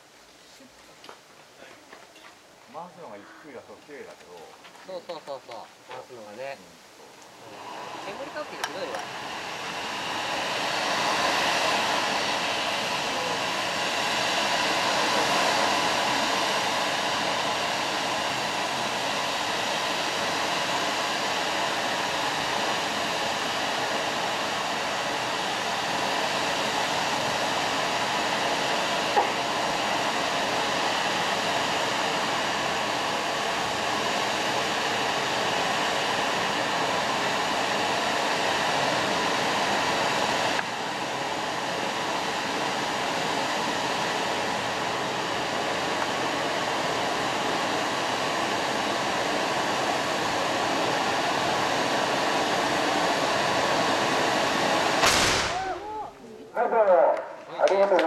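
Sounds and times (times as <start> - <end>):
firework hissing sparks: 2.7 - 56.3
sharp firework crack: 55.0 - 56.2.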